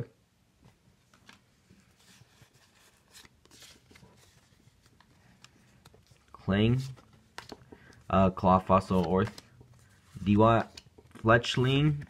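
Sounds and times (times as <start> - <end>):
cards rubbing and sliding: 1.2 - 7.8.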